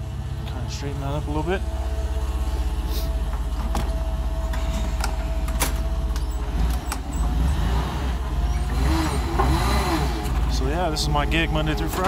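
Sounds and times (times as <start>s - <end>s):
thin steady whine: 0.0s - 6.4s
forklift engine running: 0.0s - 12.0s.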